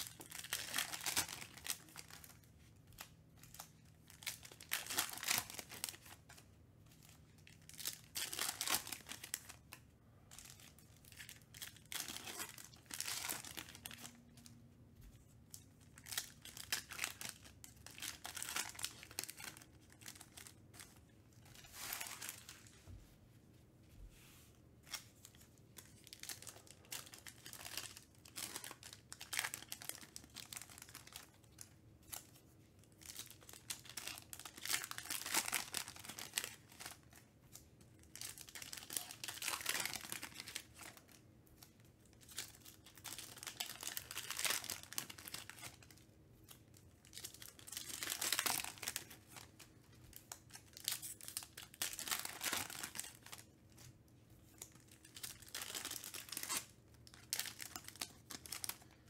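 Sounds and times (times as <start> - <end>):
foil packs tearing and crinkling: 11.8 - 14.1, 47.1 - 49.4, 55.1 - 59.0.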